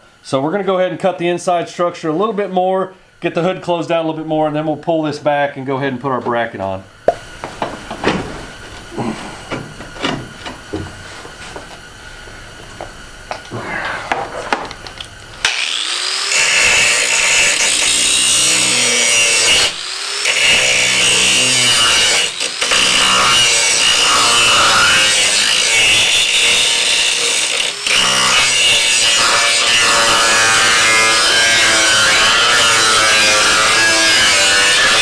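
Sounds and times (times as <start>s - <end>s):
handheld grinder cutting metal: 15.4s - 35.0s.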